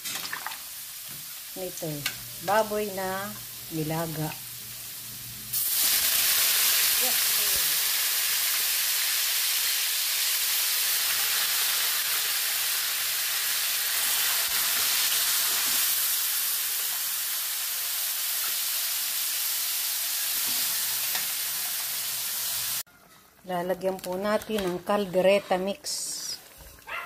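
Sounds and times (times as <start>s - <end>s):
food sizzling in a wok: 0.0s - 22.9s.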